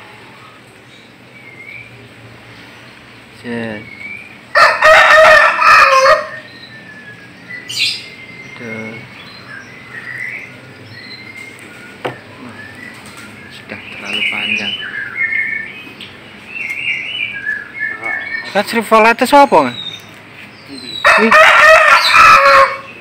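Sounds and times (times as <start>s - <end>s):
songbirds chirping: 0.0s - 23.0s
rooster crowing: 4.5s - 6.5s, 21.0s - 23.0s.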